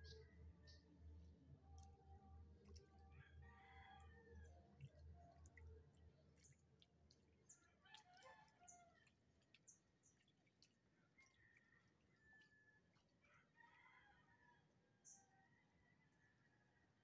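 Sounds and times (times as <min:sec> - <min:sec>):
faint rooster crowing: 0:03.0 - 0:04.6, 0:07.8 - 0:09.0, 0:11.2 - 0:17.0.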